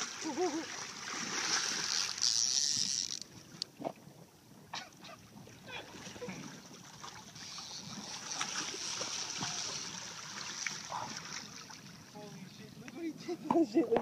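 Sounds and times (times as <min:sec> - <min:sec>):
water sloshing against boat: 0:00.0 - 0:14.0.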